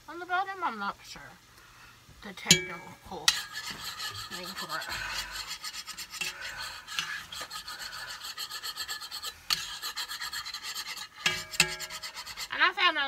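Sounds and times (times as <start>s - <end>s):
metal spoon scraping a pot: 2.5s - 12.6s.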